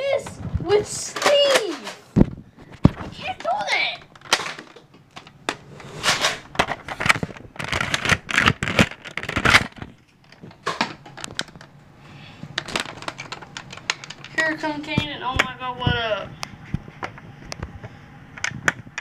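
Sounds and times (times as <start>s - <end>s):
phone scraping and clicking on plastic: 1.1s - 11.7s, 12.6s - 15.5s.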